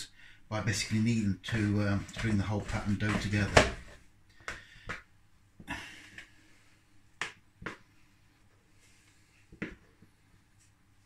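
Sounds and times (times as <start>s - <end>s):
scraper scraping plastic bowl: 0.8s - 4.0s.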